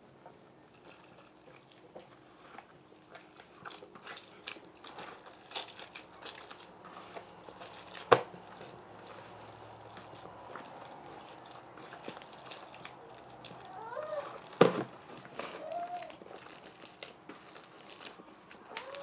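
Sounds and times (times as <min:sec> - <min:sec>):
dough being mixed in a bowl: 0:00.0 - 0:19.0.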